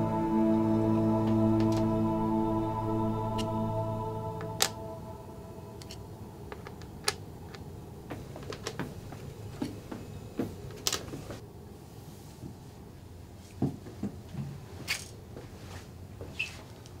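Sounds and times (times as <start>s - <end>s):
music track: 0.0s - 6.3s.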